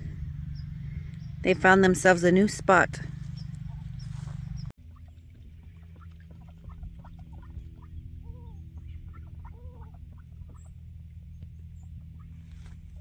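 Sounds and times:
steady low hum: 0:00.0 - 0:13.0
rising and falling bird calls: 0:03.1 - 0:04.7, 0:05.7 - 0:13.0
poultry clucking: 0:06.0 - 0:10.7.

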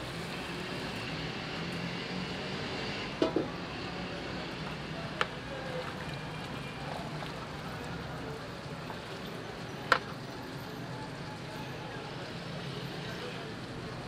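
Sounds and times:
pot boiling with a hiss: 0:00.0 - 0:01.8
street kitchen background: 0:00.0 - 0:11.7.

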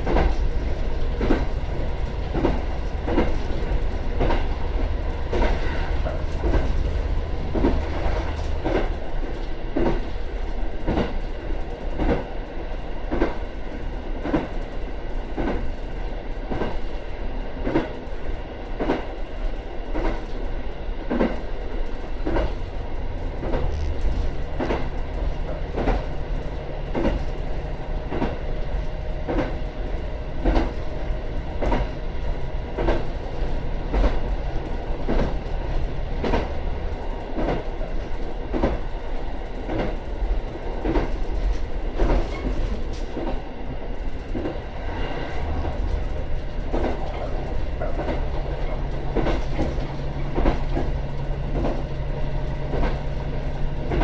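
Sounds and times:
train wheels clacking over rail joints: 0:00.0 - 0:10.2, 0:10.8 - 0:12.3, 0:13.1 - 0:13.5, 0:15.3 - 0:15.7, 0:19.9 - 0:20.4, 0:21.1 - 0:28.6, 0:29.2 - 0:43.4, 0:44.3 - 0:54.0
diesel engine drone: 0:22.6 - 0:28.1.

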